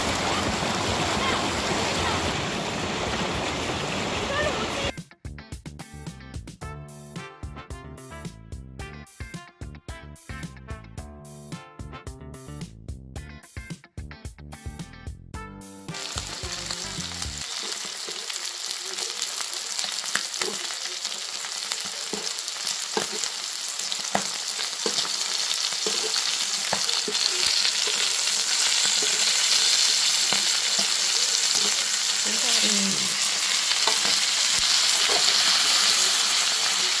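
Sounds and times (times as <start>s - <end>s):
food sizzling on grill pan: 15.9s - 37.0s.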